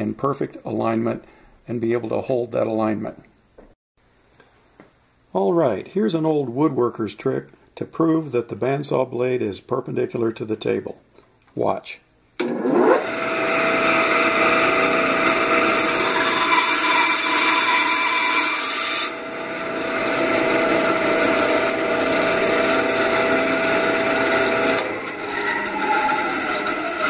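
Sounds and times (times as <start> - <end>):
bandsaw motor humming: 12.4 - 27.0
saw blade cutting wood: 12.4 - 27.0.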